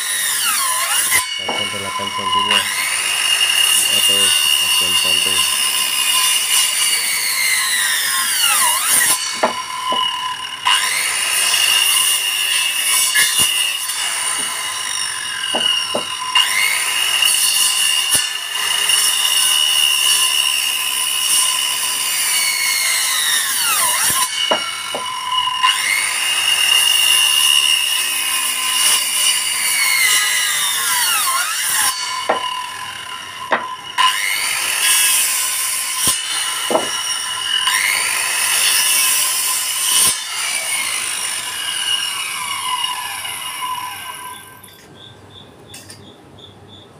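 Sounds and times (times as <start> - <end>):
circular saw cutting wood: 0.0 - 44.8
wood knocking: 9.3 - 10.1, 15.5 - 16.2, 24.5 - 25.1, 32.3 - 32.6, 33.5 - 33.8, 36.7 - 37.0.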